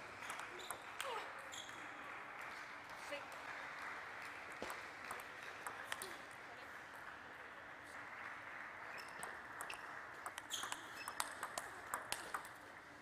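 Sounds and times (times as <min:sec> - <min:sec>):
table tennis ball clicking: 0:09.0 - 0:12.7.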